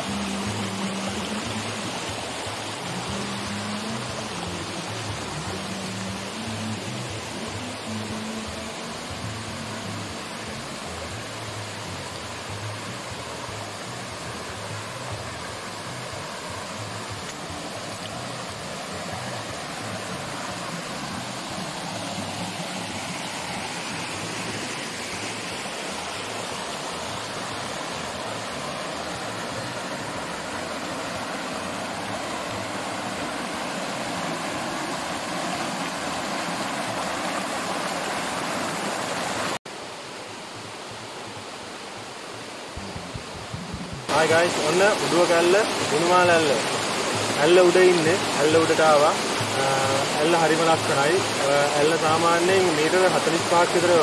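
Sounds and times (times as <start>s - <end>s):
waterfall rushing over rock: 0.0s - 54.0s.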